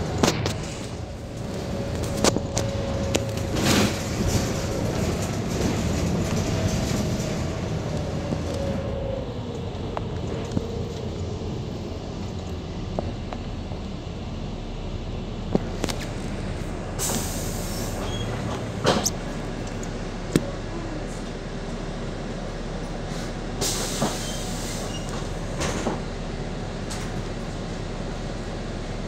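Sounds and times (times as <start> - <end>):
bus body rattles and knocks: 0.0 - 8.8, 17.9 - 21.7, 22.7 - 27.9
bus engine idling: 0.0 - 29.0.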